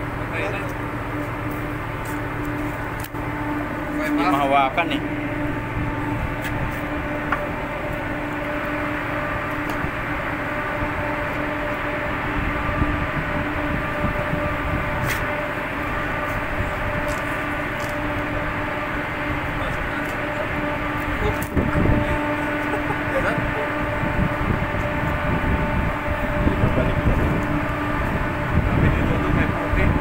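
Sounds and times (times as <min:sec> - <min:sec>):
ship machinery humming: 0:00.0 - 0:30.0.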